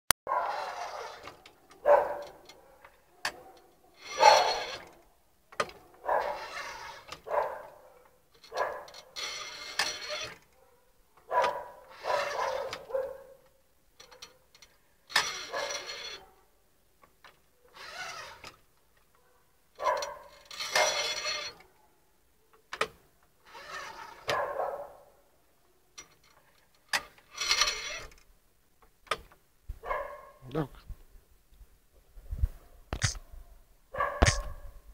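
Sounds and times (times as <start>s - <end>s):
printing machine sliding and knocking: 0.3s - 7.8s, 8.4s - 10.5s, 11.2s - 13.1s, 15.1s - 16.3s, 17.2s - 18.7s, 19.8s - 21.7s, 22.6s - 24.6s, 26.0s - 28.2s.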